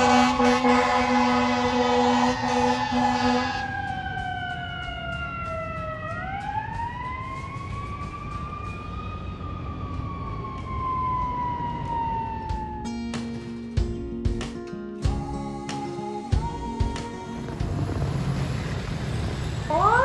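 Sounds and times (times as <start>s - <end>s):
fire engine air horn: 0.0s - 4.2s
siren rising and falling: 0.0s - 13.0s, 18.2s - 20.0s
traffic rumble: 16.8s - 20.0s.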